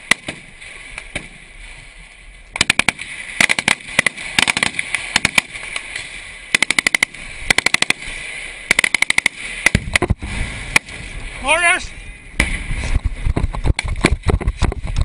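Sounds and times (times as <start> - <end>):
automatic gunfire bursts: 2.6 - 5.5, 6.5 - 8.0, 8.7 - 9.8
single gunshot: 12.4 - 12.7.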